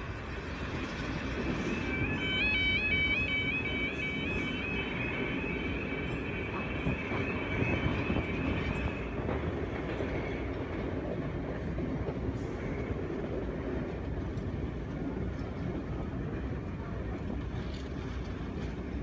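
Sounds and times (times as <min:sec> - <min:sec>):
train running noise: 0:00.0 - 0:19.0
high steady tone: 0:01.4 - 0:09.2.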